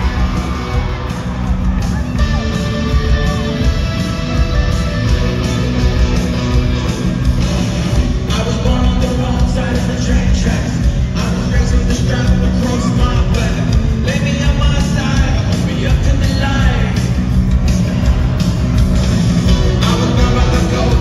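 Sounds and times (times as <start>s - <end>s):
live rock band playing: 0.0s - 21.0s
person singing: 8.1s - 17.0s, 19.5s - 21.0s.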